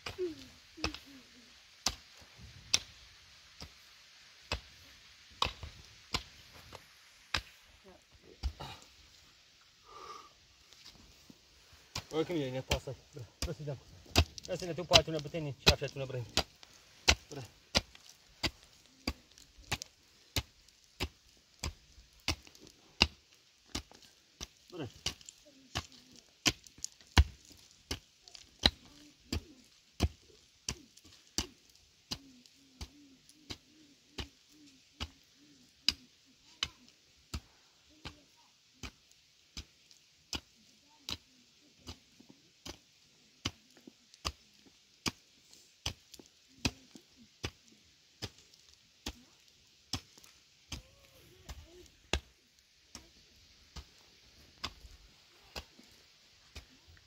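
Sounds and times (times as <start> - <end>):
hand tool chopping: 5.4 - 6.3, 12.7 - 28.0.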